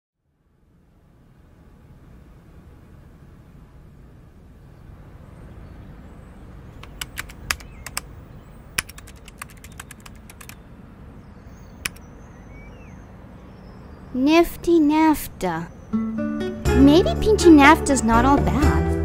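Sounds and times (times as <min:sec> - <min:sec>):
keyboard key clicks: 0:06.8 - 0:08.1, 0:08.8 - 0:10.6, 0:11.8 - 0:12.0.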